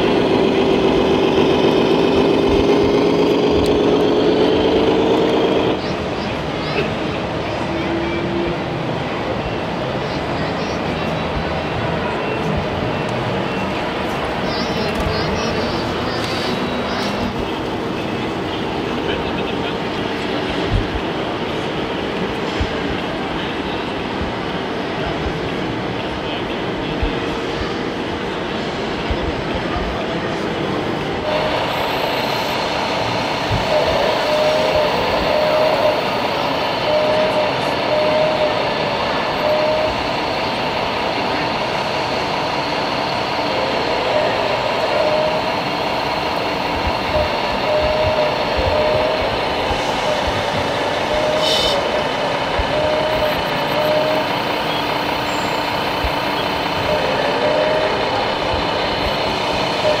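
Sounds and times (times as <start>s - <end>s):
busy hall din: 0.0s - 60.0s.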